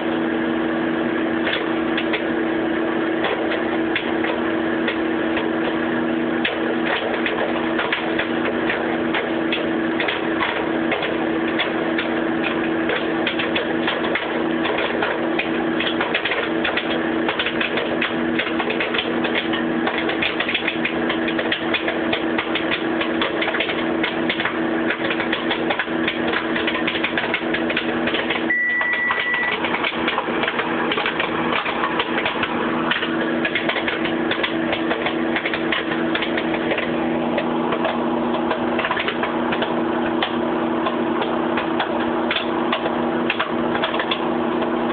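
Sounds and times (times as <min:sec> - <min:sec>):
microwave oven hum: 0:00.0 - 0:44.9
popcorn popping: 0:00.0 - 0:44.9
microwave beep: 0:28.5 - 0:29.8.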